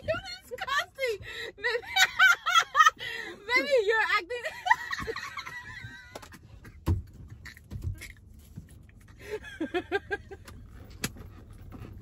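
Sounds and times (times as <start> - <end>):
woman laughing: 1.4 - 3.7, 4.3 - 6.3, 9.2 - 10.4.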